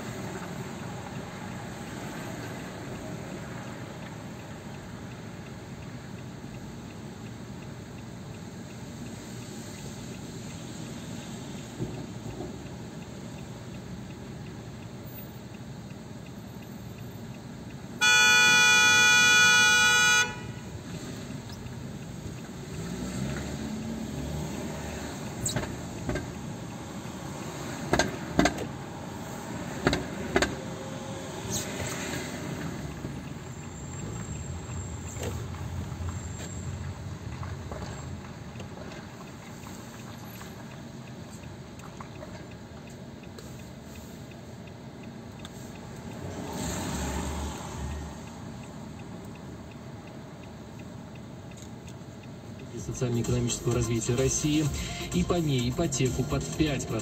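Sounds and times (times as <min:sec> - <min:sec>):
city traffic hum: 0:00.0 - 0:57.0
car horn: 0:18.0 - 0:20.8.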